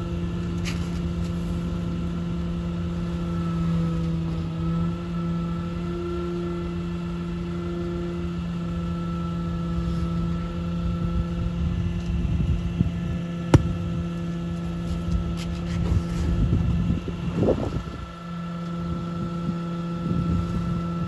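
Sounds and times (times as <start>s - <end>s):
sharp knock: 13.6s - 13.8s.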